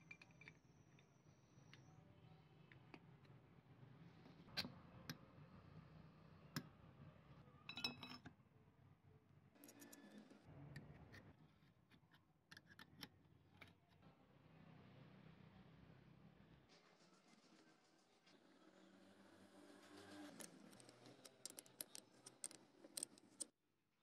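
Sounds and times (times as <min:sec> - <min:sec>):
small rattle: 0:20.0 - 0:23.5.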